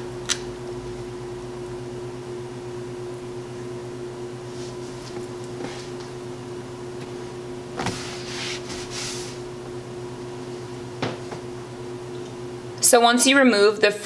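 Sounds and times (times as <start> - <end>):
appliance electrical hum: 0.0 - 14.0
towel wiping cutting board: 7.8 - 9.4.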